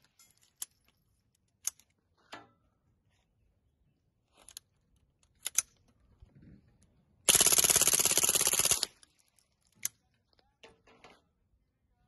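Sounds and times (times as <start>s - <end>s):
suppressed rifle firing burst: 7.3s - 8.9s.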